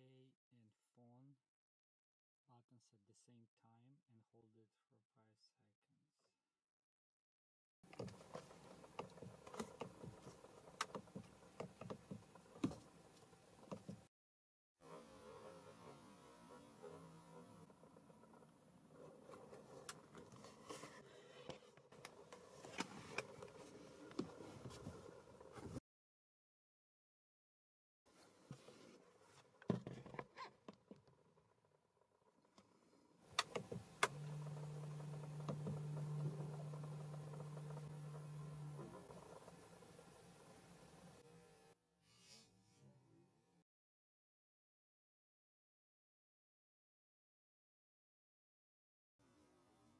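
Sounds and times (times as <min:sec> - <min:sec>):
low electric motor hum: 0:07.9 - 0:14.1, 0:14.8 - 0:25.8, 0:32.4 - 0:41.8.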